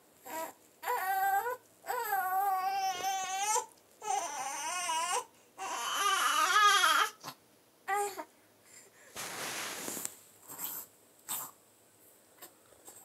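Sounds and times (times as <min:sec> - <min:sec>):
baby fussing cries: 0:00.2 - 0:07.2, 0:07.9 - 0:08.3.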